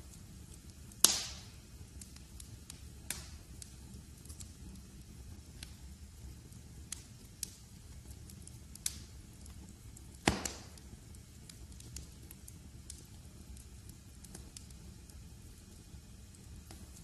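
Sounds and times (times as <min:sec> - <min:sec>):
low rumble of flames: 0:00.0 - 0:17.0
wood fire crackling: 0:00.0 - 0:17.0
loud wood pop: 0:10.3 - 0:10.7.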